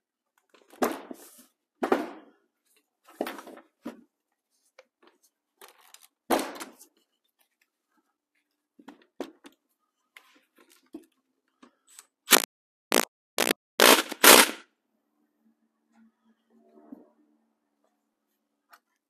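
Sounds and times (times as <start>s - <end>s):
impact tool bursts: 12.3s - 14.6s.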